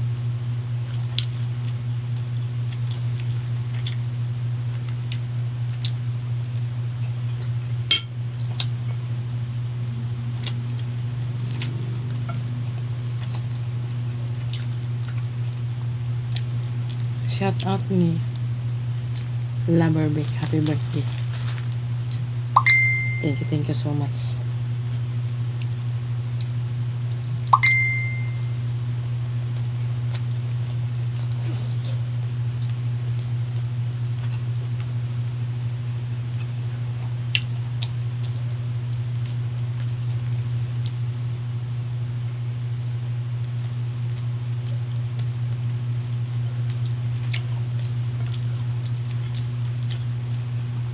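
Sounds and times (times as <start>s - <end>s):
steady low hum: 0.0s - 50.9s
metal spoon striking plate: 7.9s - 8.1s.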